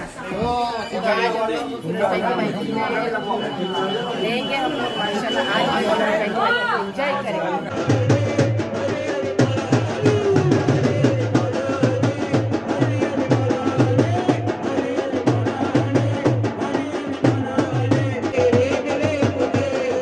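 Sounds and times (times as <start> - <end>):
hand drum beat: 7.7 - 20.0
man singing into microphone: 7.7 - 20.0.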